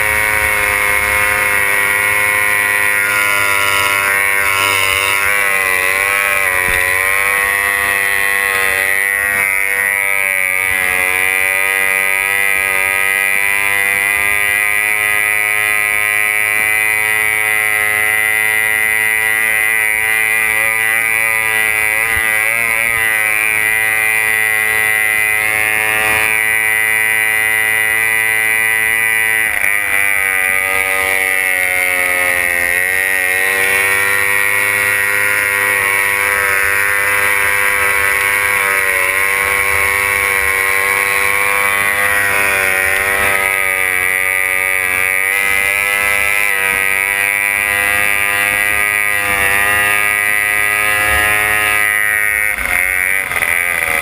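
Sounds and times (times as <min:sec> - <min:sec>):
outboard engine running flat out: 0:00.0 - 0:10.2.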